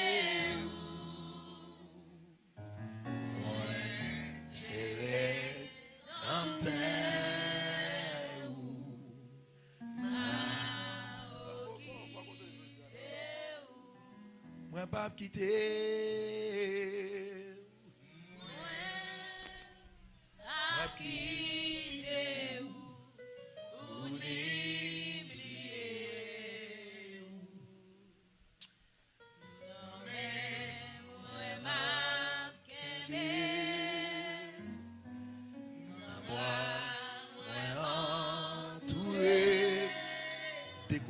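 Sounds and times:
person singing with vibrato: 3.3s - 17.5s, 35.8s - 41.0s.

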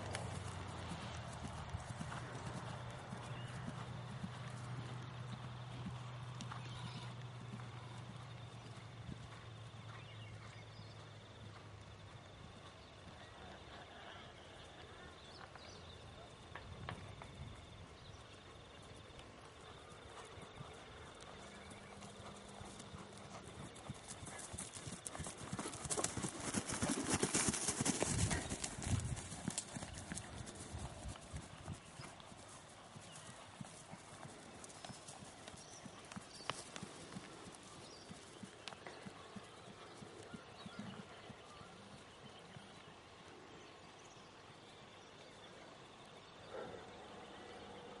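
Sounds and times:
horse hooves trotting on grass: 0.0s - 43.4s
faint outdoor background noise: 0.0s - 48.0s
horse hoof beats on grass: 24.2s - 39.3s.

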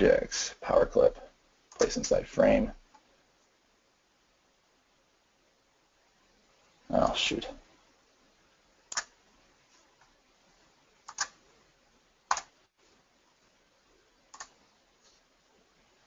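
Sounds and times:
computer mouse clicks: 8.9s - 9.2s, 11.1s - 11.4s, 12.3s - 12.5s, 14.3s - 14.6s.

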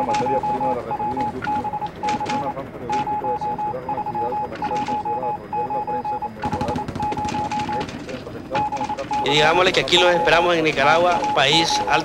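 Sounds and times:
pulsing electronic beep: 0.0s - 12.0s.

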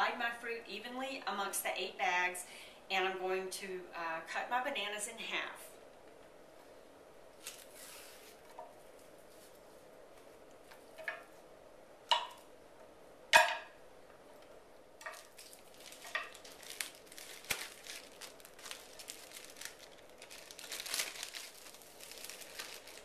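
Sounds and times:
plastic bags crinkling: 7.4s - 8.4s, 15.0s - 23.0s.

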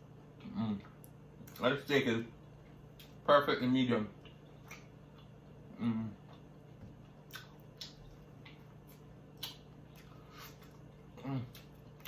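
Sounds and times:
lip smacks and chewing: 4.2s - 5.6s, 6.3s - 12.0s
low vocal sound: 5.7s - 6.3s.

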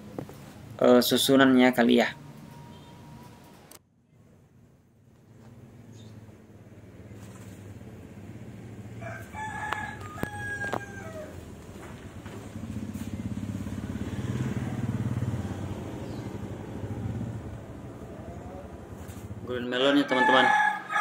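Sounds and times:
vehicle engine hum passing: 0.0s - 19.8s
rooster crowing: 8.9s - 11.9s, 19.8s - 21.0s.

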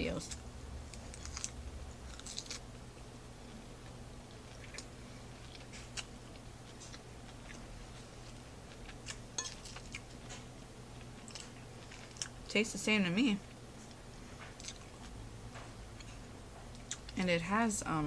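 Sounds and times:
chewing salad: 0.2s - 12.5s, 13.4s - 17.2s
fork clinking against plate: 9.4s - 9.8s.

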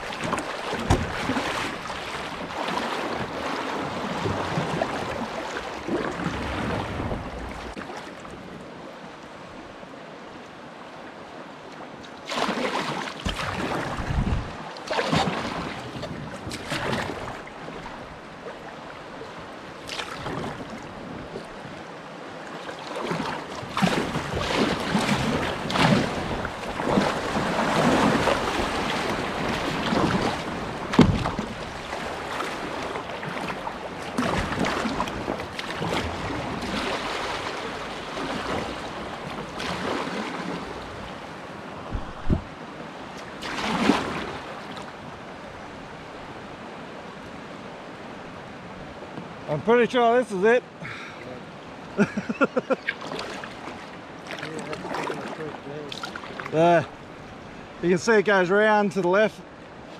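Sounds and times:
paddle strokes in water: 0.0s - 46.3s, 52.1s - 57.8s
water splashing and rushing: 0.0s - 59.9s
wind on microphone: 5.9s - 7.8s, 13.2s - 14.6s, 41.8s - 42.6s.

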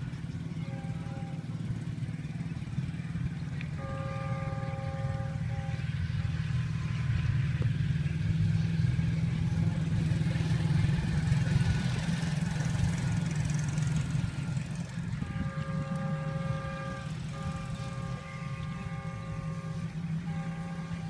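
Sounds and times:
locomotive horn chord: 0.0s - 7.4s, 13.0s - 21.0s
diesel locomotive engine rumble: 0.0s - 21.0s
rush of moving train: 0.0s - 21.0s.

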